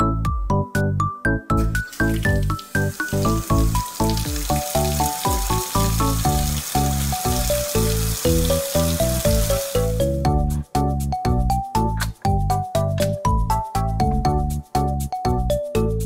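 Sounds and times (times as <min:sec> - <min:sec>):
background melody music: 0:00.0 - 0:16.0
toy tap running water hiss: 0:01.7 - 0:10.1.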